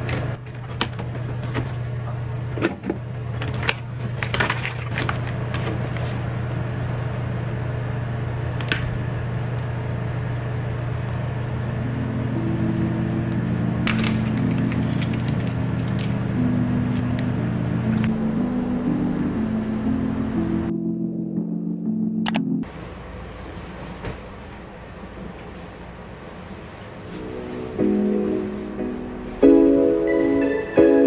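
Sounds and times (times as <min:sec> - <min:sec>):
steady low hum: 0:00.0 - 0:31.0
soft low musical notes: 0:11.6 - 0:22.7, 0:27.1 - 0:31.0.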